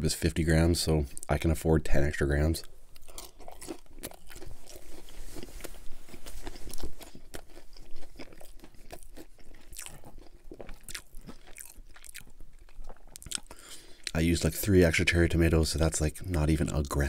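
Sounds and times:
person chewing crisp food: 2.6 - 14.2.

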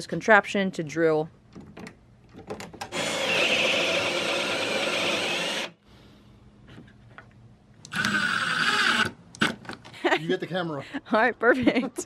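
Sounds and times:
cordless drill boring into wood: 2.9 - 5.8, 7.9 - 9.6.

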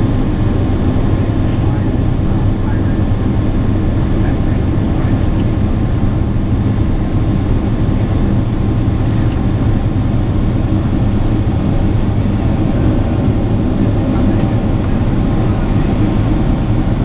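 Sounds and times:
airplane cabin engine drone: 0.0 - 17.0.

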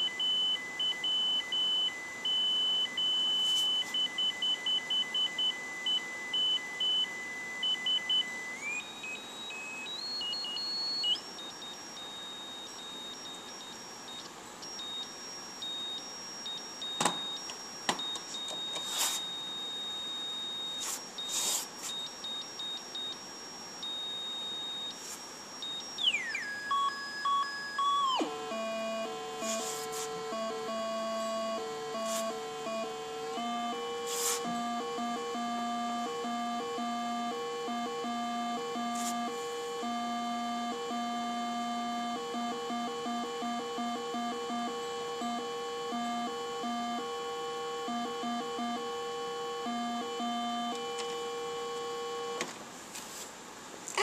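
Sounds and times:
high-pitched electronic beeps: 0.0 - 51.0
long high electronic tone: 22.4 - 52.4.

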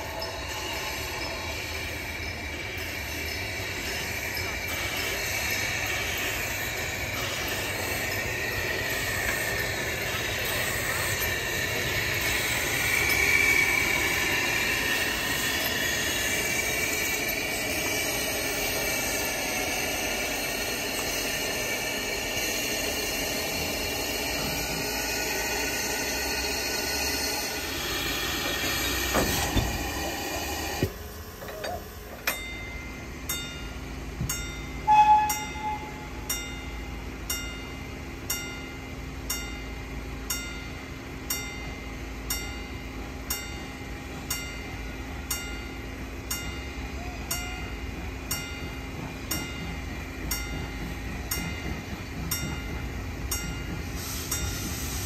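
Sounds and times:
high wheel squeal: 0.0 - 31.9, 34.8 - 36.5
steam locomotive running past: 0.0 - 55.0.

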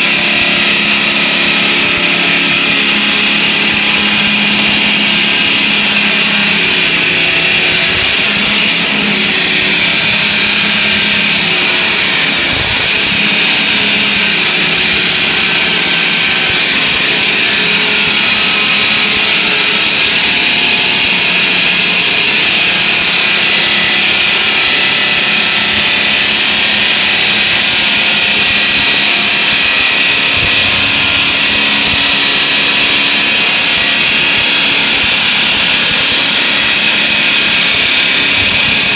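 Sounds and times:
circular saw cutting concrete: 0.0 - 38.9.

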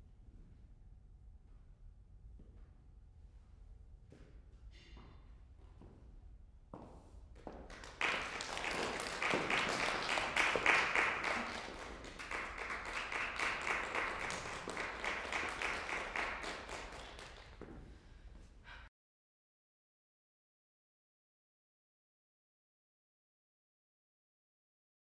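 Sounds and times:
audience applauding: 7.7 - 17.7.

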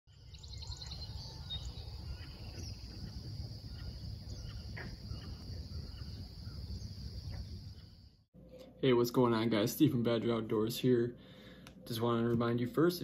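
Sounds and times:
trilling insect chorus: 0.4 - 8.2.

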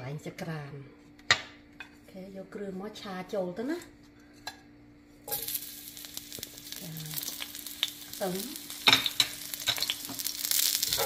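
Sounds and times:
garlic sizzling in hot oil: 5.2 - 11.0.

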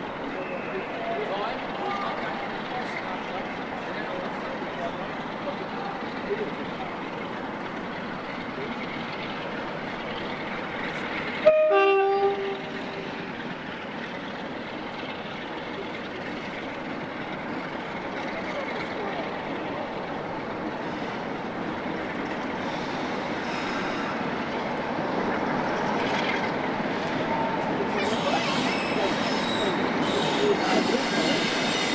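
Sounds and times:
diesel locomotives running under load: 0.0 - 31.9
two-tone train horn: 11.4 - 13.2.

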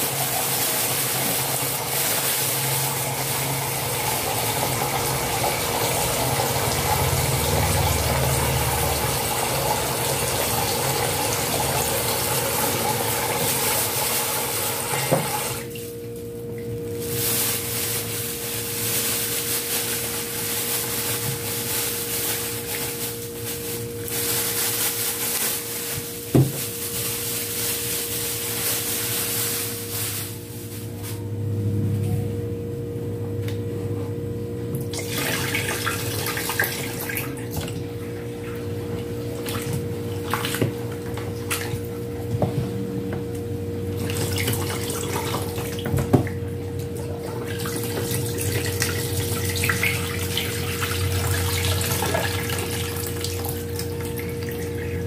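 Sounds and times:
water pouring into a sink: 0.0 - 15.8, 34.9 - 37.8, 43.9 - 55.0
water sloshing in a pot: 43.9 - 55.0.

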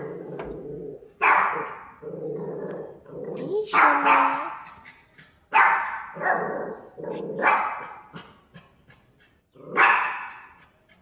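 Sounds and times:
dog barking: 1.2 - 2.0, 3.7 - 4.6, 5.5 - 8.2, 9.7 - 10.6.

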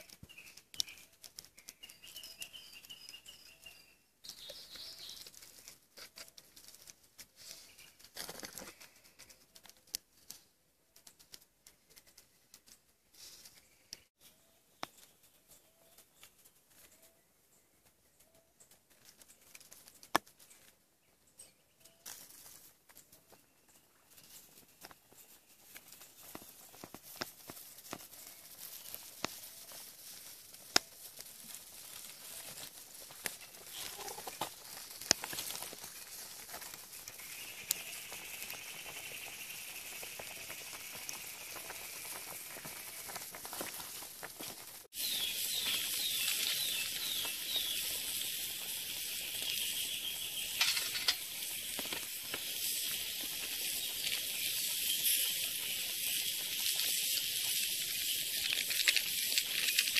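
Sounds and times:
wood fire crackling and popping: 0.0 - 3.5, 23.9 - 59.9
pot boiling: 28.1 - 59.9.

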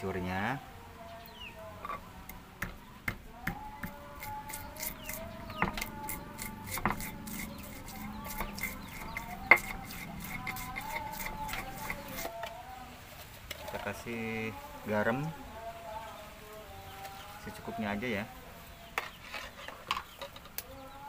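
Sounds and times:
stone pestle knocking in mortar: 2.6 - 12.3.

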